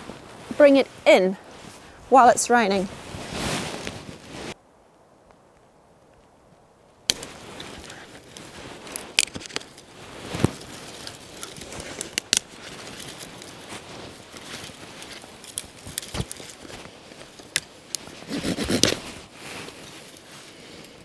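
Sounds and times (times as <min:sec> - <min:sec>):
dry twigs snapping: 0:07.1 - 0:18.2.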